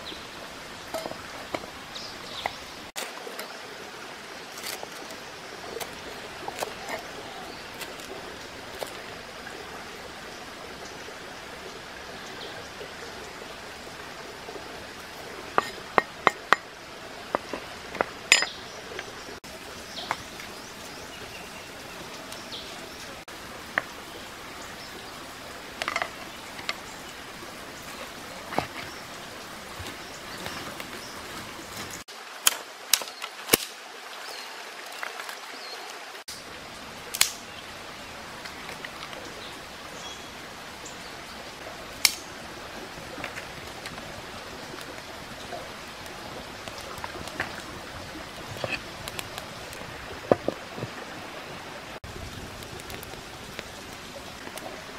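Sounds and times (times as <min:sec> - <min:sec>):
flowing stream: 0:00.0 - 0:54.9
dry twigs being handled: 0:04.4 - 0:09.0, 0:25.7 - 0:27.0.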